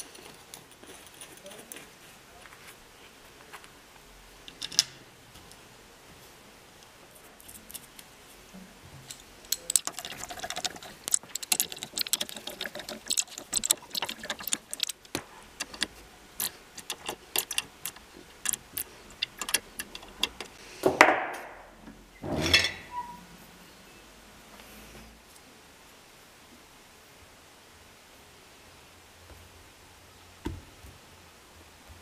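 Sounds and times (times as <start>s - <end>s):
metal clicks of nuts and tool: 9.1s - 20.6s.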